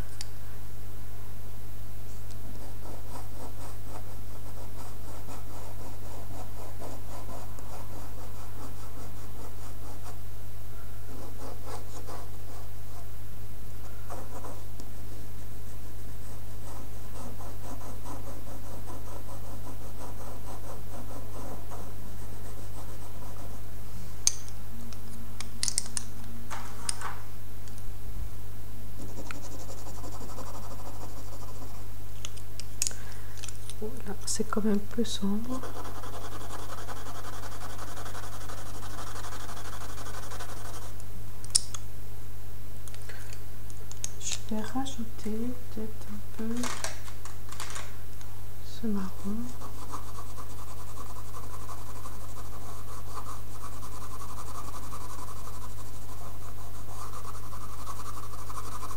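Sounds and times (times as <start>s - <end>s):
pencil scratching on paper: 2.4s - 10.2s, 11.1s - 13.1s, 13.8s - 14.7s, 15.6s - 23.7s, 29.0s - 31.9s, 35.4s - 41.0s, 49.0s - 58.9s.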